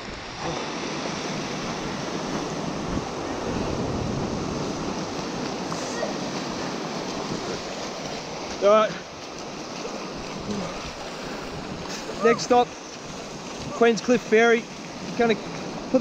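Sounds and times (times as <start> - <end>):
wind on microphone: 0.0 - 8.2
surf waves breaking: 0.0 - 16.0.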